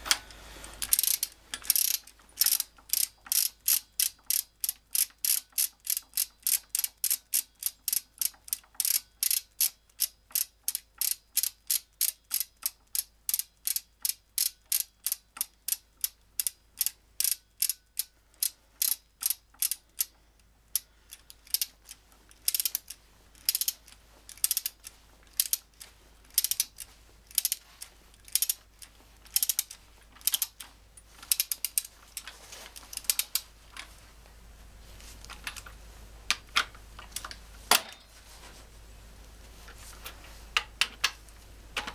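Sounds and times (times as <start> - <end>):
socket ratchet clicking: 0.8 - 20.2, 20.8 - 33.5.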